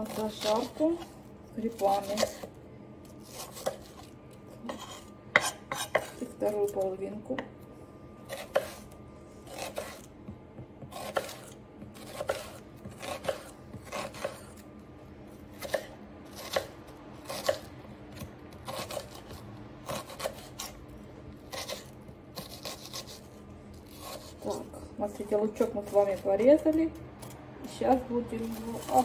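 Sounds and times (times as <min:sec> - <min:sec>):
knife chopping on wooden board: 0:01.8 - 0:02.5, 0:03.2 - 0:04.1, 0:04.7 - 0:06.2, 0:08.3 - 0:08.9, 0:09.5 - 0:14.6, 0:15.6 - 0:20.8, 0:21.5 - 0:23.2.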